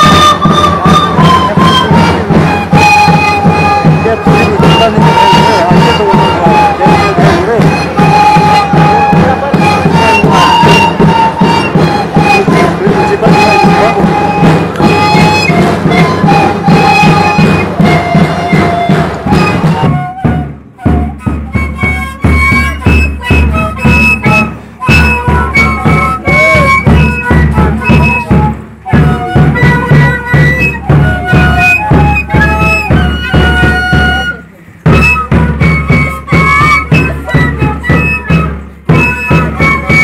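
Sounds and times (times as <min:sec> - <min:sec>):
drum beat: 0:00.0 - 0:40.0
wooden flutes playing melody: 0:00.0 - 0:40.0.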